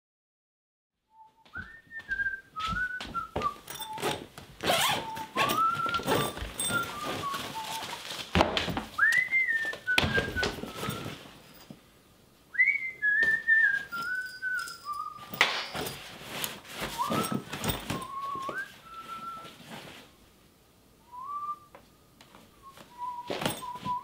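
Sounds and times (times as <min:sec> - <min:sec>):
man whistling a tune: 0:01.1 - 0:04.2, 0:04.8 - 0:08.1, 0:09.0 - 0:11.2, 0:12.5 - 0:15.4, 0:17.0 - 0:19.6, 0:21.0 - 0:21.8, 0:22.6 - 0:24.0
nylon bag rustling and knocking: 0:02.6 - 0:11.8, 0:15.3 - 0:19.9, 0:23.2 - 0:24.0.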